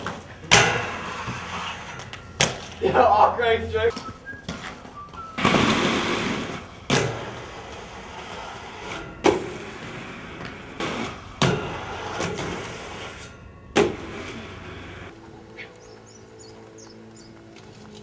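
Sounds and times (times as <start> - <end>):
skateboard clacking on ground: 0.0 - 3.0, 3.8 - 15.1
skateboard wheels rolling on pavement: 0.0 - 18.0.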